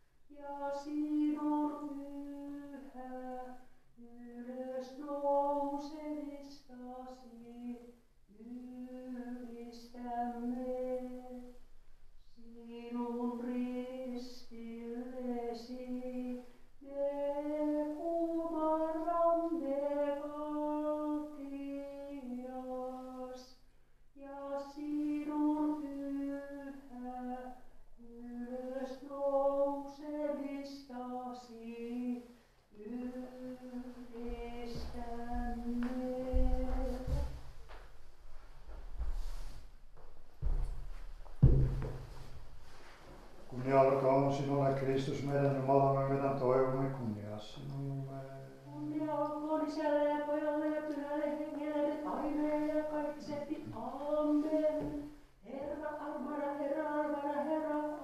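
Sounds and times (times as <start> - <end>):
woman chanting a hymn: 32.8 - 37.3, 43.5 - 58.0
knock: 40.4 - 42.4.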